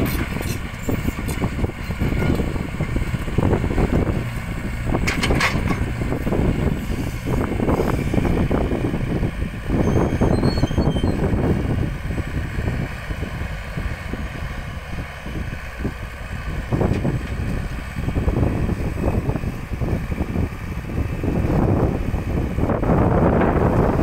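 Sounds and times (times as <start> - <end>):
excavator engine running: 0.0 - 24.0.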